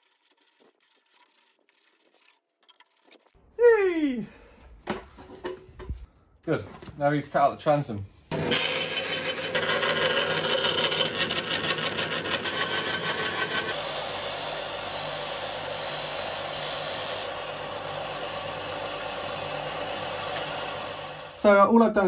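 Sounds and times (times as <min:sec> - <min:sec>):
bandsaw cutting plywood: 0:08.3 - 0:21.6.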